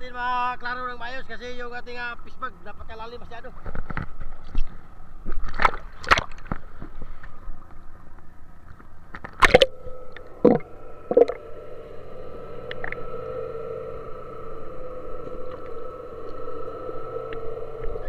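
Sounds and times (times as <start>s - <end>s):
muffled underwater hum: 3.5s - 18.0s
sea water splashing and sloshing: 5.3s - 7.2s
bubbling gurgles: 9.4s - 9.8s, 10.4s - 11.4s.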